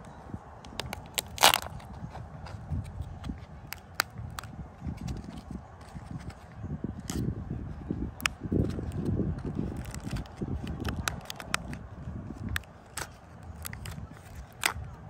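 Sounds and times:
wrapper crinkling and crackling: 0:00.7 - 0:02.6, 0:08.6 - 0:11.8, 0:12.4 - 0:14.8.

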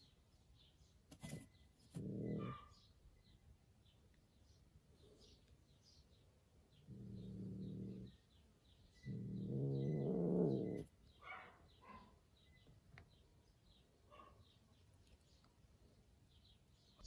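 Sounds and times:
birds chirping faintly: 0:00.0 - 0:17.0
cat growling: 0:01.9 - 0:02.6, 0:06.8 - 0:08.2, 0:09.0 - 0:10.9.

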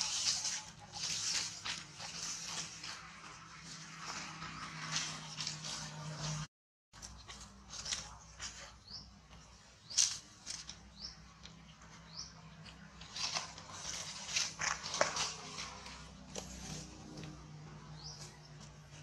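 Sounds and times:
dry leaves crackling and rustling: 0:00.0 - 0:11.2, 0:12.5 - 0:19.0.

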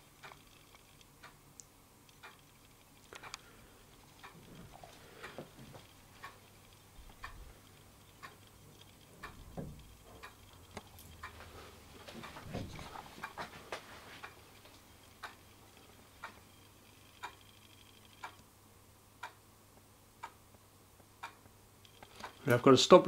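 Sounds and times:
wall clock ticking: 0:00.0 - 0:18.5, 0:19.1 - 0:23.0
soft low thumps: 0:12.2 - 0:13.0.

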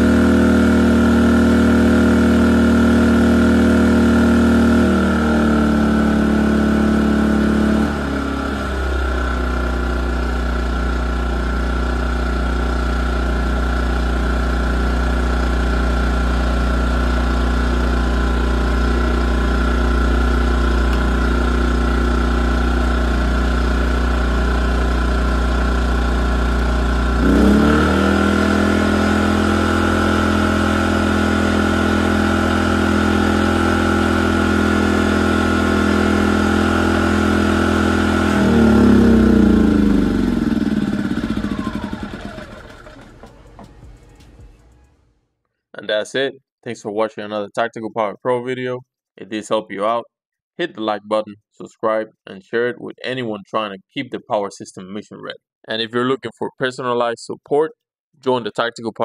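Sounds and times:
generator engine running: 0:00.0 - 0:45.2.

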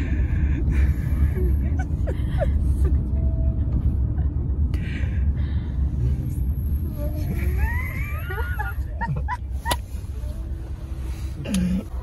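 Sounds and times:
van engine and road noise: 0:00.0 - 0:12.0.

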